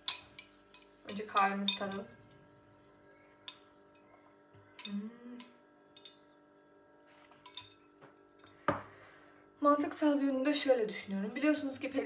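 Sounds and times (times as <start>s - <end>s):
person humming: 4.8s - 5.6s.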